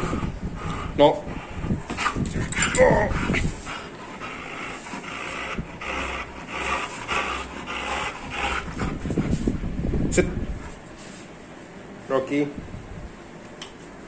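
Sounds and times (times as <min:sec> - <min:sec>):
dog vocal sound: 0:00.0 - 0:09.5
dog panting hard: 0:00.0 - 0:09.7.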